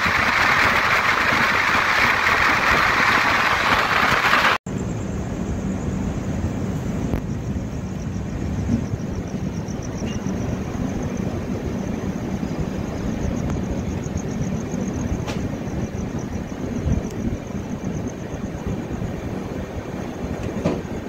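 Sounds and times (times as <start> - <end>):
train rumble and hum: 0.0 - 21.0
faint high pulsing chirp: 4.7 - 18.6.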